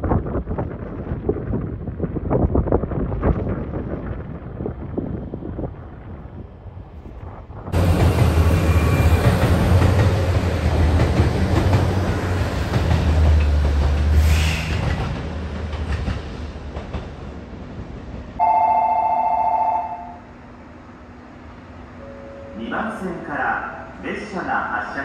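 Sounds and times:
train rumbling past: 0.0s - 25.0s
two-tone station chime: 18.4s - 20.2s.

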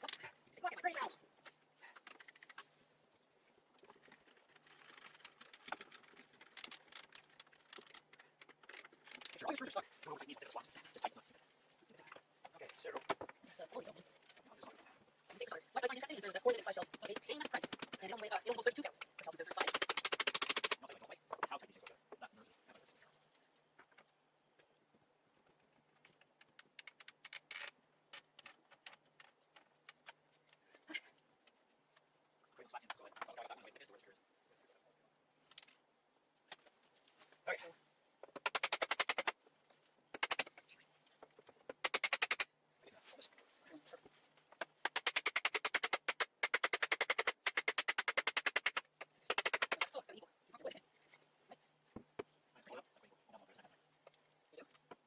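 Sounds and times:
faint low hum: 20.8s - 38.4s, 48.8s - 55.0s
small clicks and taps: 25.4s - 32.1s.

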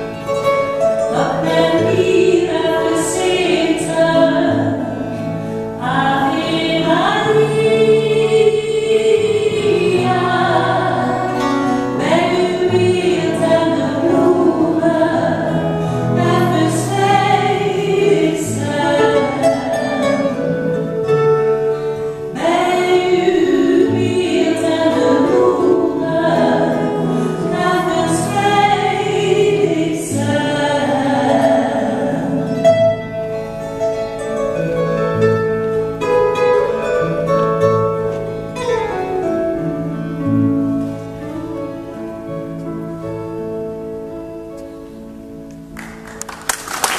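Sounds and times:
acoustic guitars: 0.0s - 46.9s
woman singing: 1.0s - 21.2s, 22.3s - 32.6s
choir singing: 5.8s - 11.4s, 12.0s - 21.2s, 22.3s - 32.4s.

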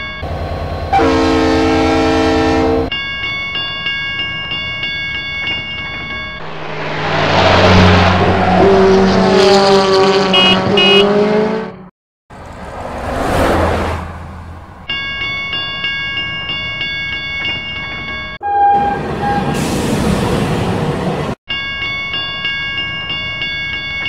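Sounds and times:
level crossing bell ringing: 2.9s - 6.4s, 14.8s - 18.4s
vehicle swishing past: 6.4s - 11.7s, 12.4s - 14.6s
truck engine passing: 6.4s - 14.9s
horn beeps: 10.2s - 11.3s, 18.4s - 19.8s.

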